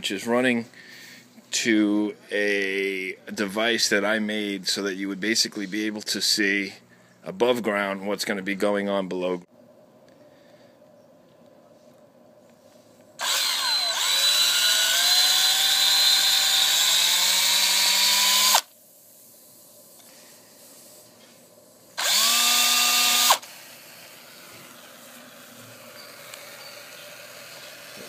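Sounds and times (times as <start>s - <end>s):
power drill boring into plastic pipe: 13.2s - 18.7s, 22.0s - 28.0s.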